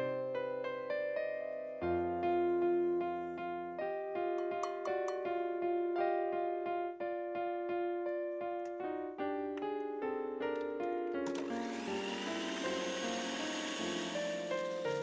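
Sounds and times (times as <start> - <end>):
piano music: 0.0 - 15.0
electric hand mixer whirring: 11.2 - 15.0.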